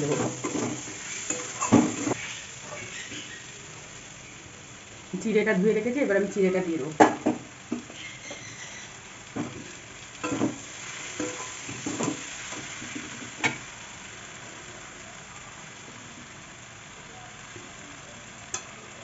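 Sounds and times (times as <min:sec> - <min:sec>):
metal spatula scraping a metal pan: 0:00.0 - 0:03.5, 0:07.8 - 0:09.0
food sizzling: 0:00.0 - 0:19.0.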